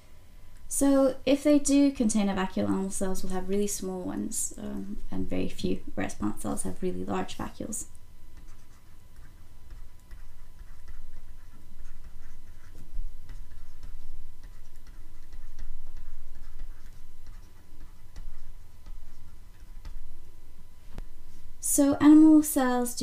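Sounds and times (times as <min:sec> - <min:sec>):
stylus tapping on drawing tablet: 0:08.4 - 0:20.1.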